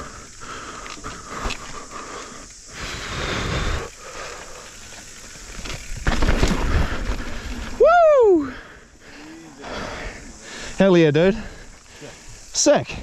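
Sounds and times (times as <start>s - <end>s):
bike tyre noise on dirt: 0.0s - 13.0s
bike clicks and rattles: 0.3s - 2.7s, 3.8s - 7.8s.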